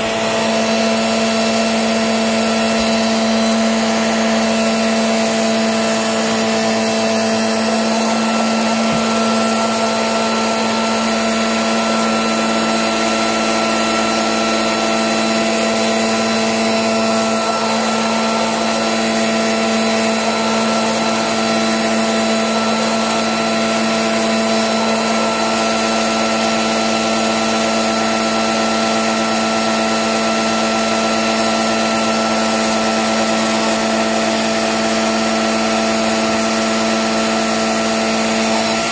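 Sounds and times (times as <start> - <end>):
motor machine whirring: 0.0 - 27.2.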